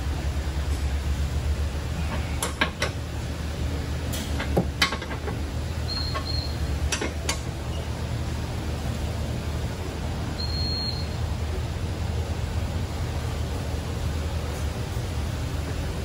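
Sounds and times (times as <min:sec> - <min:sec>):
low equipment hum: 0:00.0 - 0:16.0
short high beeps: 0:10.4 - 0:11.2.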